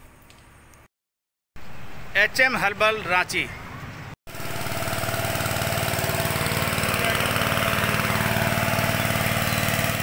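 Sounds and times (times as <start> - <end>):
small engine chugging: 4.3 - 10.0.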